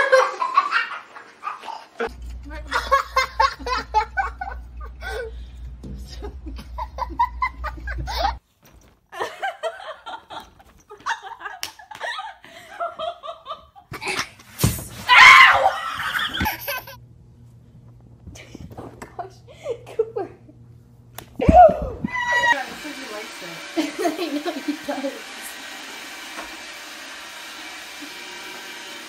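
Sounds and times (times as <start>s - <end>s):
people laughing: 0.0s - 5.3s, 6.0s - 8.4s, 9.1s - 14.4s, 15.7s - 17.0s, 22.3s - 25.0s.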